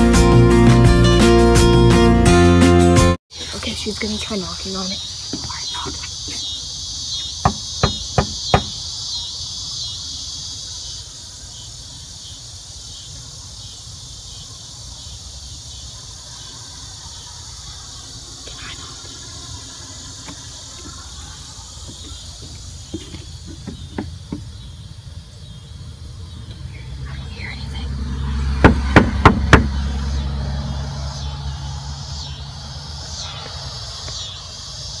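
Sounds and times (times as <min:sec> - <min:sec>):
insects chirring: 0:03.3 - 0:35.0
knock on wooden door: 0:07.4 - 0:08.8, 0:28.6 - 0:29.7.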